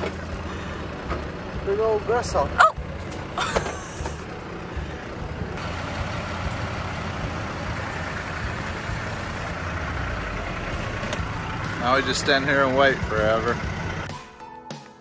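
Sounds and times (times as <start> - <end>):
vehicle engine idling: 0.0 - 14.1.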